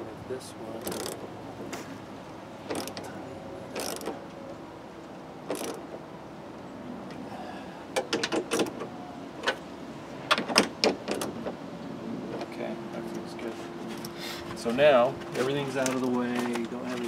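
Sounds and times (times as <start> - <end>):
socket ratchet clicking: 0.9 - 1.2, 2.7 - 3.0, 3.8 - 4.1, 5.5 - 5.8.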